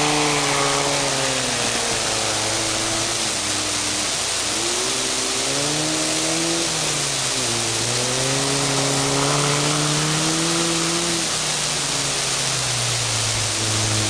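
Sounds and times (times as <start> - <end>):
motor running under load: 0.0 - 14.0
steady hiss: 0.0 - 14.0.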